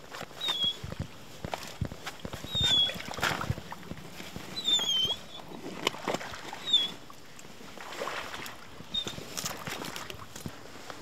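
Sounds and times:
dog whining: 4.6s - 5.5s.

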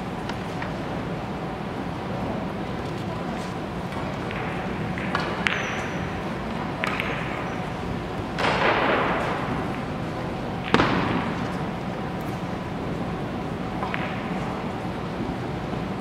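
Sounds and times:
cue striking ball: 3.9s - 7.5s, 8.3s - 11.8s, 13.7s - 14.8s.

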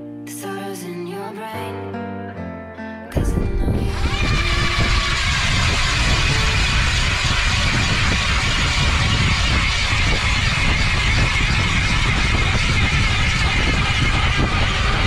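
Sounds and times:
electric ice auger boring: 4.0s - 15.0s.

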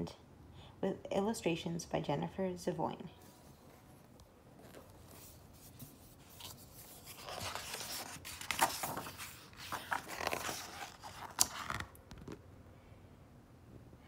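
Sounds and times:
book pages turning and rustling: 3.2s - 12.4s.

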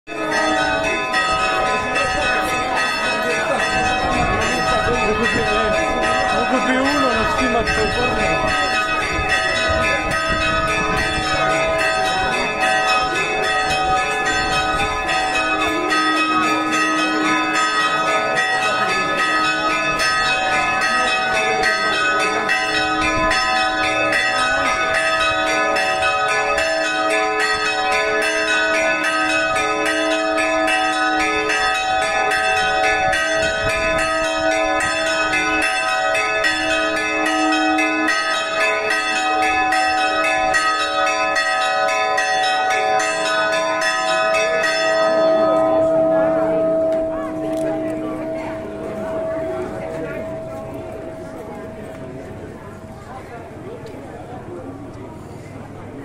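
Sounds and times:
church bells pealing: 0.1s - 56.0s
crowd voices: 0.1s - 56.0s.

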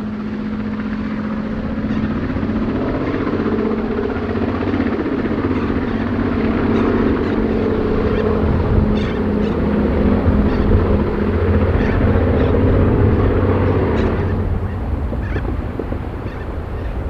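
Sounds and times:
aircraft radial engines droning: 0.0s - 17.0s.

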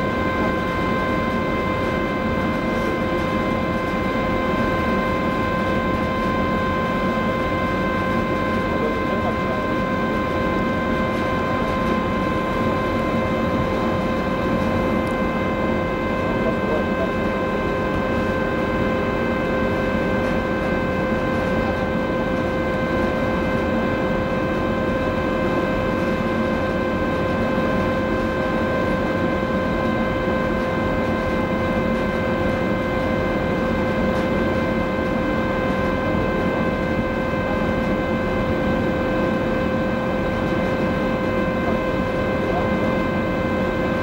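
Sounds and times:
constant machine whine: 0.0s - 44.0s.

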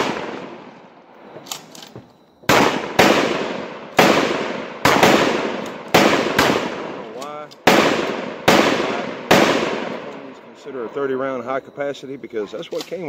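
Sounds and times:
echoing gunshots: 0.0s - 1.7s, 2.4s - 11.2s.

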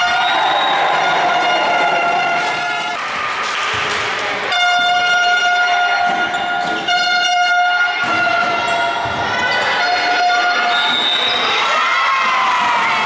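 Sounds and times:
crowd noise: 0.0s - 13.0s
handheld horn blasts: 4.5s - 8.9s.

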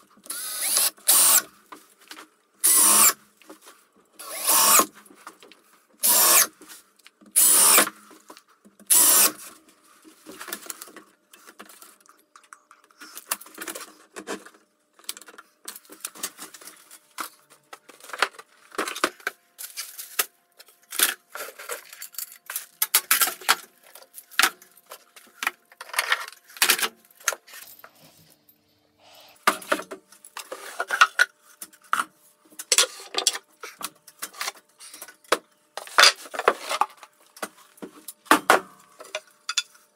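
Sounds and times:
cordless drill driving screws: 0.3s - 1.5s, 2.6s - 3.2s, 4.2s - 4.9s, 6.0s - 6.5s, 7.4s - 7.9s, 8.9s - 9.4s.

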